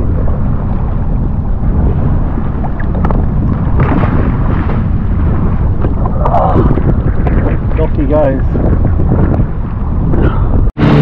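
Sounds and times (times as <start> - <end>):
water washing against hull: 0.0 - 11.0
wind buffeting microphone: 0.0 - 11.0.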